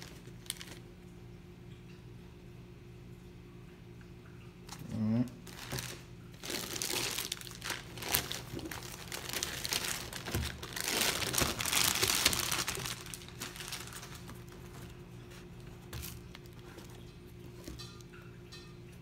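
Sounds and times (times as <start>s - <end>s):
plastic bag crinkling: 0.0s - 0.9s, 5.4s - 17.8s.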